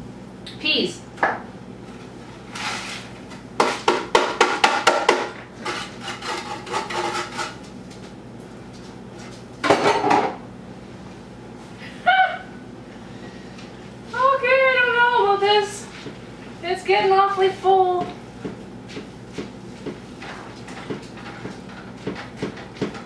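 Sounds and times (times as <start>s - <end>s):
faint steady hum: 0.0s - 23.0s
utensils and dishes clattering: 5.6s - 7.6s.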